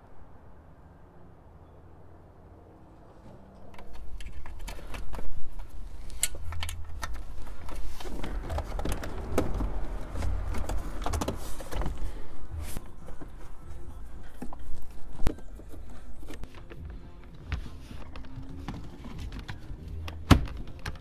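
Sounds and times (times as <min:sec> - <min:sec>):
plastic parts clicking and rattling: 0:03.6 - 0:12.1.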